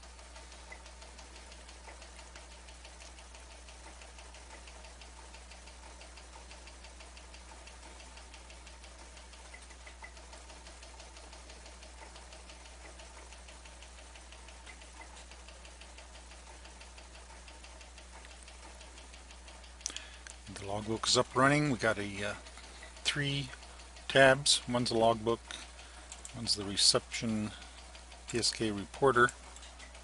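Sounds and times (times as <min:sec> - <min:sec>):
electrical hum and hiss: 0:00.0 - 0:30.0
fast light ticks: 0:00.0 - 0:30.0.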